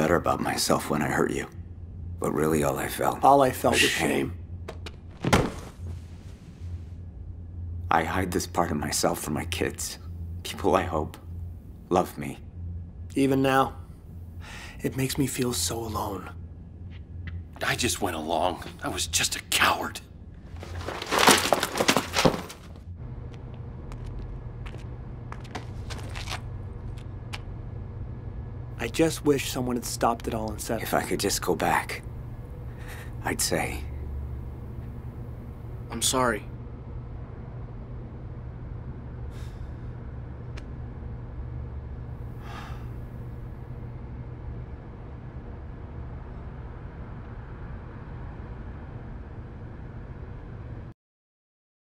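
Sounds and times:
low hum: 0.0 - 50.9
steady low rumble: 0.0 - 50.9
scuffling with sharp knocks: 20.6 - 22.8.

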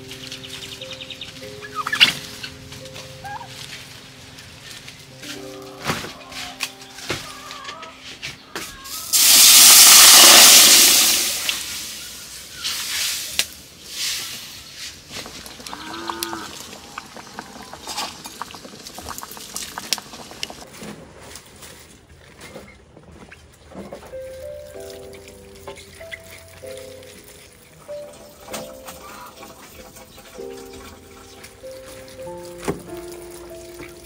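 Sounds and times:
animal call: 1.0 - 3.7, 5.3 - 9.1, 15.5 - 18.2, 28.8 - 29.7
meat sizzling in a wok: 8.9 - 16.2.

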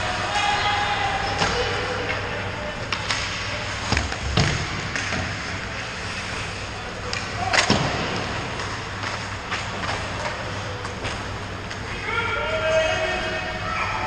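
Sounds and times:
steady low hum: 0.0 - 14.0
hockey sticks and puck knocking: 2.8 - 5.6, 7.0 - 11.9.

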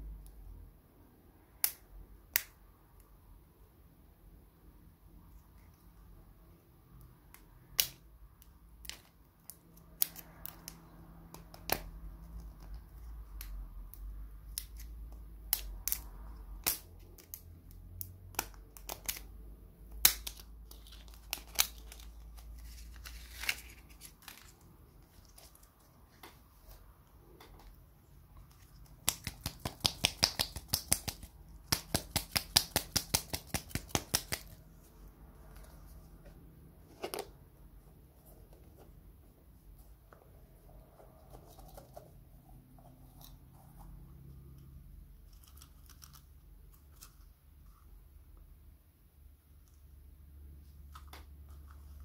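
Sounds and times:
shrink wrap crackling and tearing: 20.0 - 25.7, 45.2 - 47.3.

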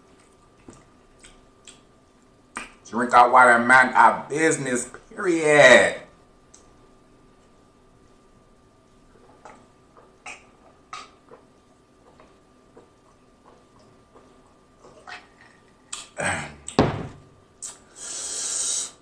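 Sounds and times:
faint gulping: 9.2 - 16.7
bottle thunk set down: 16.8 - 17.2
breathy hiss: 17.6 - 19.0.

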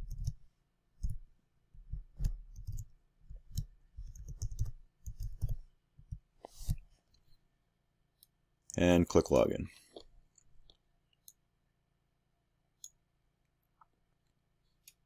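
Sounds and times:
computer keyboard typing: 0.0 - 0.4, 1.9 - 6.2.

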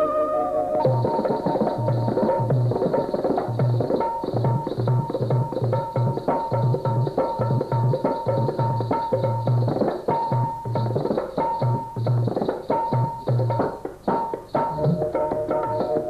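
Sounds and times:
melody instrument high note: 0.0 - 2.0
tabla rhythm: 0.0 - 16.0.

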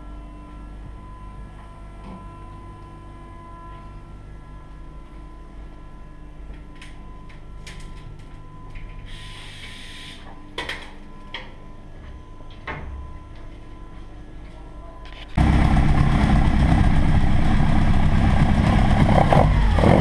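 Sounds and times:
workshop hum with faint whine: 0.0 - 15.5.

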